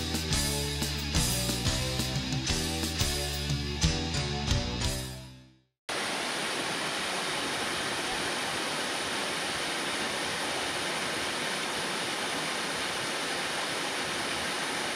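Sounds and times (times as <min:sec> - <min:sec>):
background music: 0:00.0 - 0:05.6
waterfall splashing into pool: 0:05.9 - 0:14.9.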